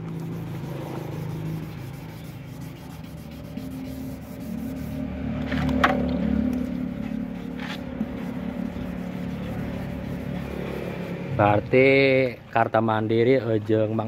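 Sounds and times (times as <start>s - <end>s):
sandpaper rubbing on paint: 0.0s - 5.8s, 6.5s - 11.6s
steady low hum: 0.0s - 11.6s.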